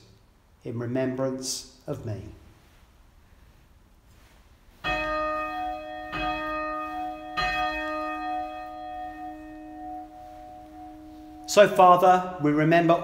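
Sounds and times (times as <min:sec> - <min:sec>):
bell ringing: 0:04.8 - 0:12.4.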